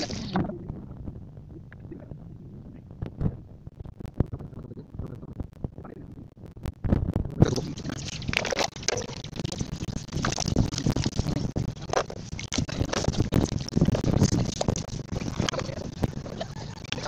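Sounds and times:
water splashing and sloshing: 0:00.0 - 0:00.6, 0:07.7 - 0:16.0.

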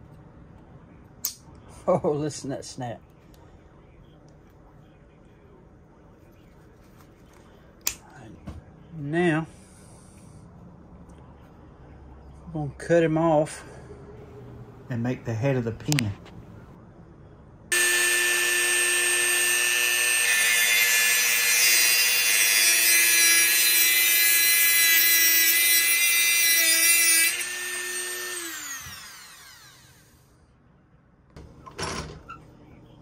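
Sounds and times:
rotary tool grinding metal: 0:17.8 - 0:30.1
rotary tool spinning down: 0:27.3 - 0:30.2.

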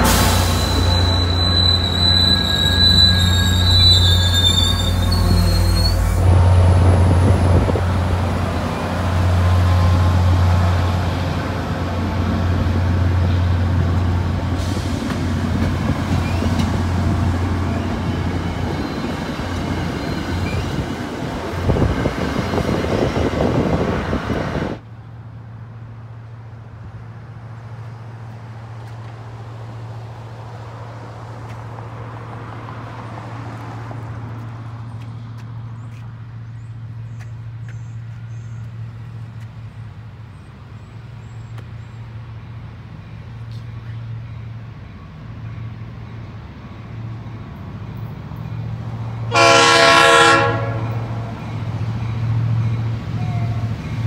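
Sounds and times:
train wheels over rail joints: 0:00.0 - 0:24.8
wheel squeal: 0:00.5 - 0:06.2.

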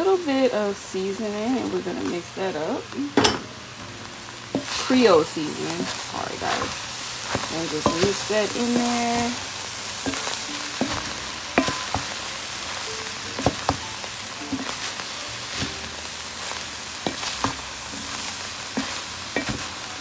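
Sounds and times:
food sizzling in a pot: 0:00.0 - 0:20.0
spatula knocking and scraping pot: 0:05.7 - 0:09.4, 0:10.0 - 0:12.2, 0:13.4 - 0:13.9, 0:17.0 - 0:17.7, 0:18.7 - 0:19.7.

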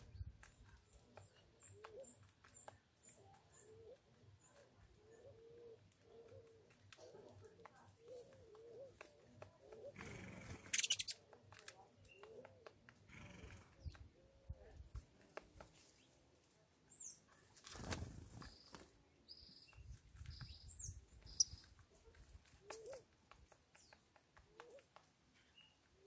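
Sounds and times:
dove cooing: 0:01.6 - 0:02.2, 0:03.6 - 0:11.1, 0:22.6 - 0:23.1, 0:24.5 - 0:24.9
bird wings fluttering: 0:17.5 - 0:19.0.

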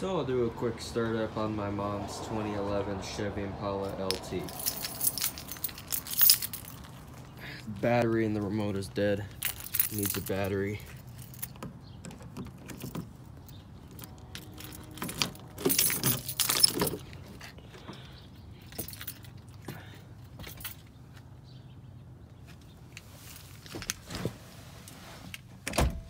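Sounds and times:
car keys jangling: 0:03.9 - 0:07.8, 0:09.2 - 0:21.0
car door clunks and rattles: 0:25.6 - 0:26.0.

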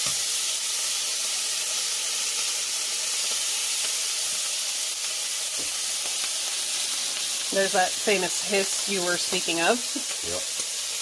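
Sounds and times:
garlic sizzling in hot oil: 0:00.0 - 0:11.0.

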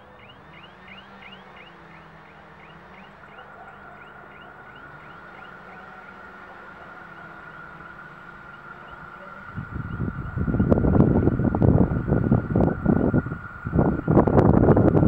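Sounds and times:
bird chirping: 0:00.0 - 0:07.8
wind buffeting microphone: 0:09.3 - 0:15.0.

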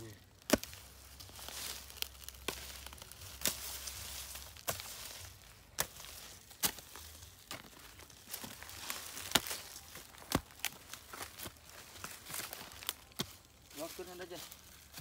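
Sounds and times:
dry leaves crackling and rustling: 0:00.0 - 0:15.0
hoe chopping into soil: 0:00.4 - 0:00.9, 0:05.8 - 0:10.8.

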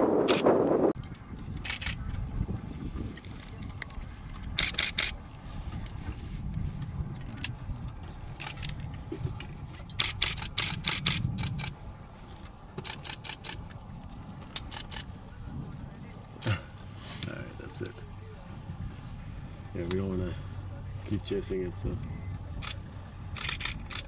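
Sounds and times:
steady low rumble: 0:00.0 - 0:24.0
camera shutters clicking: 0:01.6 - 0:02.0, 0:04.5 - 0:05.2, 0:09.9 - 0:11.7, 0:12.8 - 0:13.6, 0:14.6 - 0:15.1, 0:22.5 - 0:22.8, 0:23.4 - 0:24.0.

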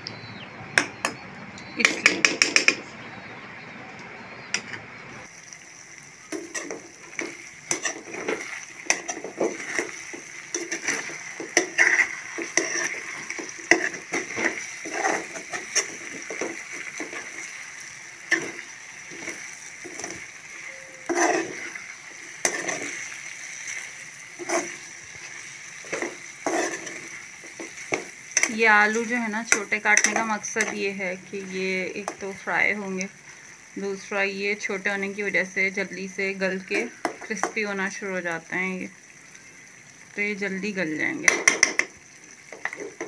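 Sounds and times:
frying sizzle: 0:04.2 - 0:43.0
metal spatula scraping a pan: 0:06.3 - 0:30.9.

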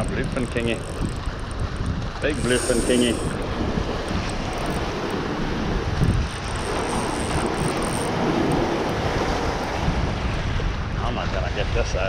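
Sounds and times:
surf washing: 0:00.0 - 0:12.0
wind buffeting microphone: 0:00.0 - 0:12.0.

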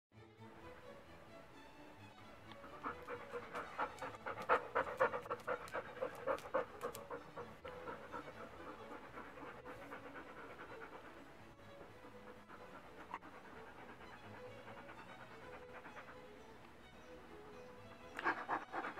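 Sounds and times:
dog panting: 0:02.4 - 0:18.9.

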